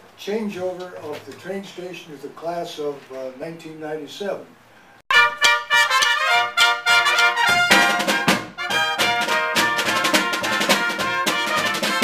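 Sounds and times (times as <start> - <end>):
brass band playing: 5.1 - 12.0.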